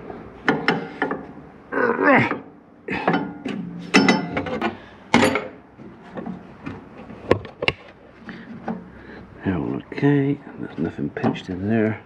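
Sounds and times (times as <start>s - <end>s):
metallic knocks and clicks: 3.0s - 5.6s
spanner clanking on metal floor: 3.0s - 5.6s.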